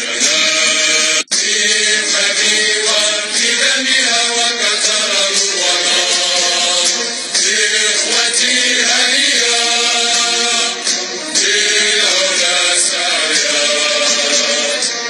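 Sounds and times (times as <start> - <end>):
voices chanting a song: 0.0 - 15.0.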